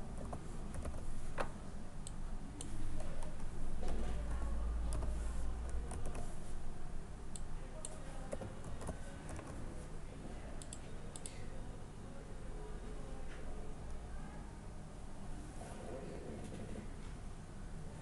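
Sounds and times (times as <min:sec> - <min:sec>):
low steady hum: 0:00.0 - 0:18.0
keyboard typing clicks: 0:04.8 - 0:06.3, 0:10.6 - 0:11.4.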